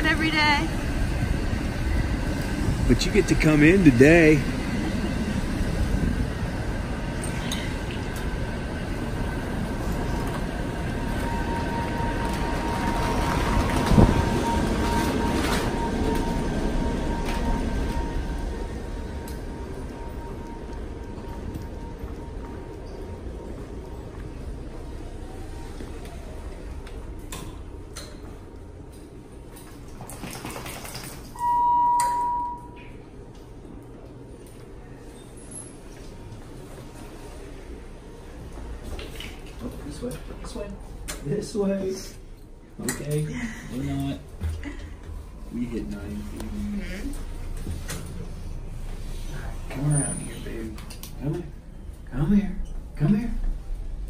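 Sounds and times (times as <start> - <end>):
power wheelchair mechanical hum: 0.0 - 30.0
elevator electronic beep: 9.1 - 25.8, 31.4 - 33.2.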